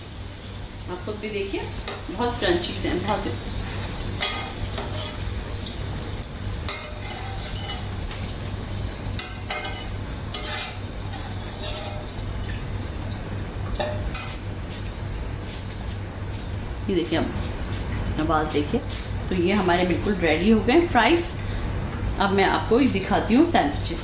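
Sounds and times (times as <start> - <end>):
fries sizzling in hot oil: 0.0 - 24.0
metal spoon scraping pot: 6.7 - 7.9, 9.2 - 12.2.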